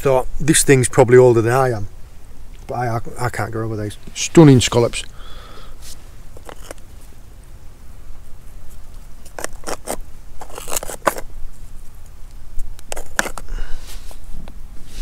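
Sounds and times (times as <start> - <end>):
scallop shells clacking: 6.4 - 6.9.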